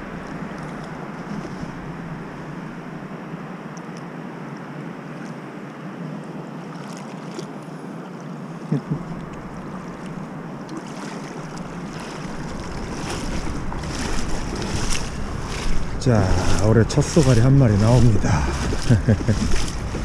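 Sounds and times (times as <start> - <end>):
river water rushing: 0.0 - 20.0
wind on microphone: 11.4 - 20.0.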